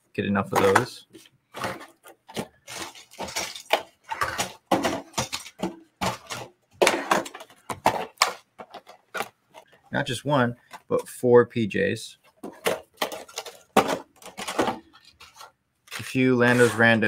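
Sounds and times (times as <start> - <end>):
plastic blister packs crinkling: 1.6 - 9.8.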